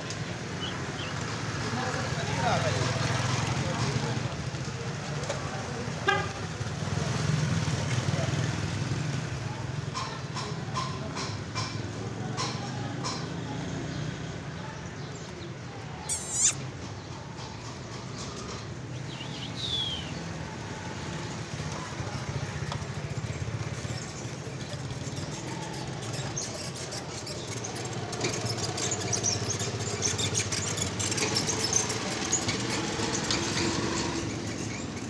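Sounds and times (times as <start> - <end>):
small birds chirping: 0.0 - 4.4, 13.0 - 35.0.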